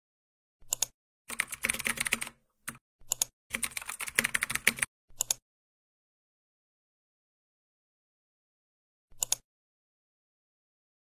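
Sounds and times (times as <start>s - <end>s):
keyboard typing: 0.7s - 5.4s.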